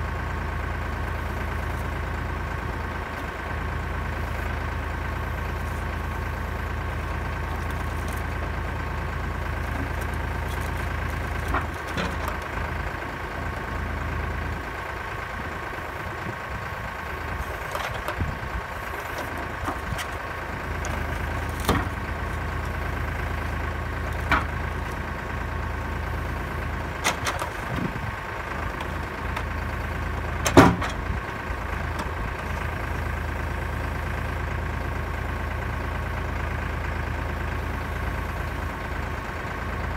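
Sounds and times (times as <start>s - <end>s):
tractor engine running: 0.0s - 39.9s
logs knocking onto trailer: 6.4s - 14.6s, 17.3s - 33.3s.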